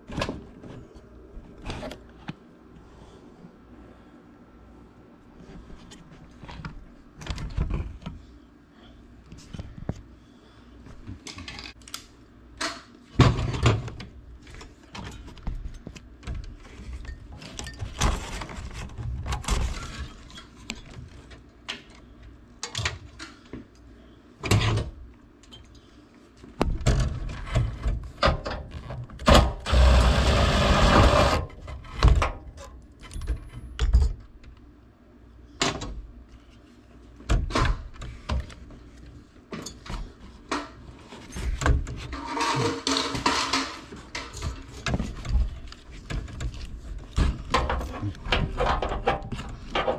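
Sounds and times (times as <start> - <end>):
sheet metal clanks and rattles: 41.9 - 45.3.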